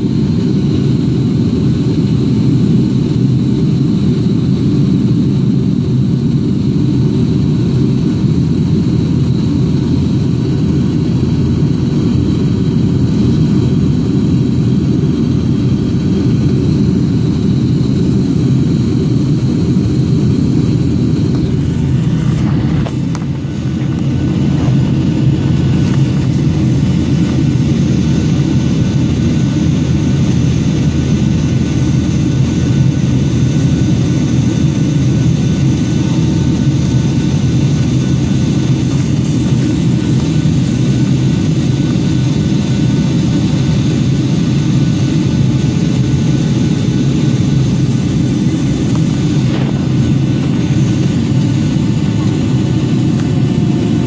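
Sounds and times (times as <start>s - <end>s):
jet airliner cabin roar: 0.0s - 54.0s.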